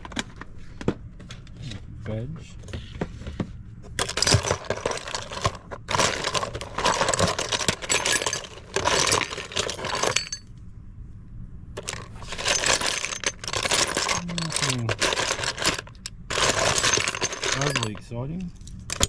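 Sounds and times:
plastic toys clattering in a tub: 4.0 - 10.4, 11.8 - 18.1.

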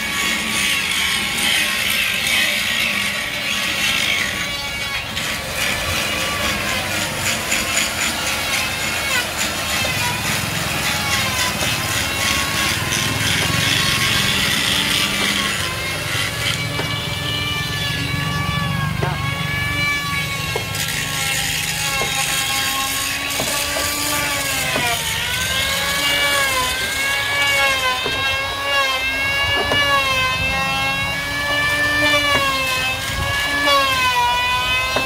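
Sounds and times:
motor running: 0.0 - 33.9
sharp knocks: 16.4 - 17.1, 18.8 - 19.4, 20.4 - 22.4.

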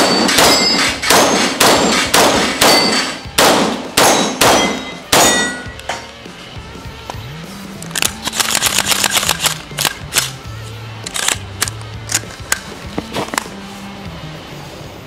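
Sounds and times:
rifle shots: 0.0 - 5.7
steel plate target ringing: 0.0 - 6.1.

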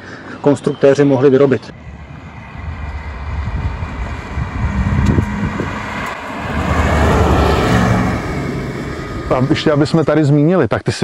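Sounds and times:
car engine approaching: 1.7 - 10.4.

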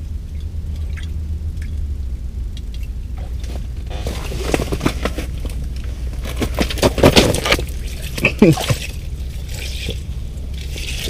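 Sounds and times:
low rumble: 0.0 - 11.0
fish splashing in water: 7.2 - 11.0.

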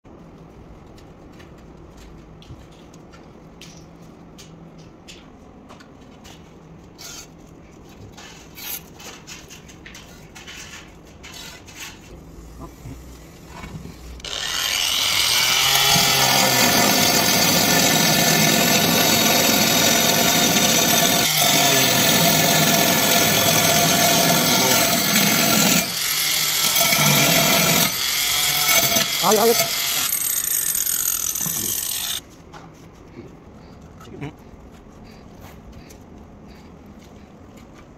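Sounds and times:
angle grinder cutting tile: 14.2 - 32.2.

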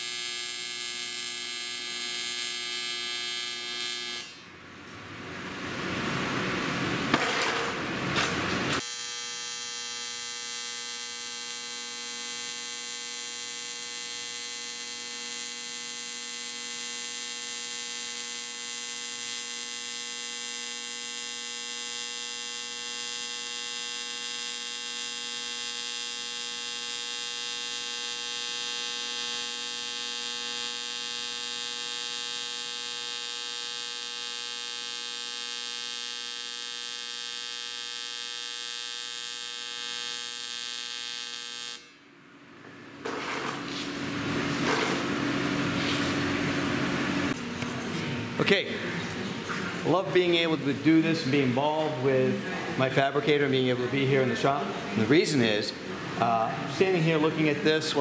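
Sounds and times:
welding arc hissing: 0.0 - 4.5, 8.1 - 42.0, 43.0 - 54.1
welding arc buzzing: 0.0 - 5.6, 6.2 - 58.0.

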